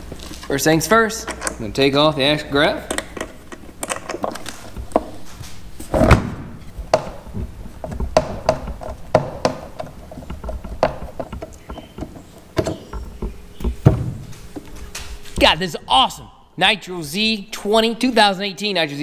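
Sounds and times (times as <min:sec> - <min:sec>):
hardware clicks and knocks: 0:01.1 - 0:02.0, 0:02.6 - 0:15.6
loud thunk: 0:06.0 - 0:07.2, 0:13.8 - 0:14.2.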